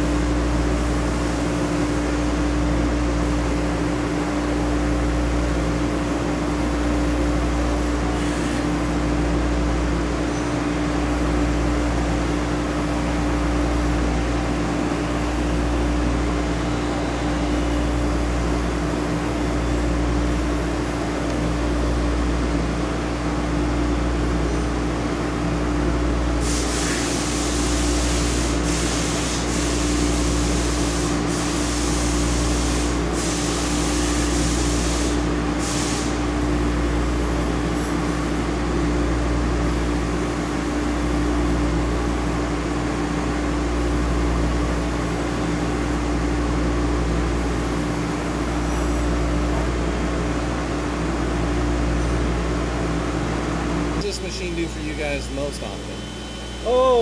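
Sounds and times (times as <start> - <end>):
coolant spray hissing: 26.4 - 36.2
grinding machine humming: 54.0 - 57.0.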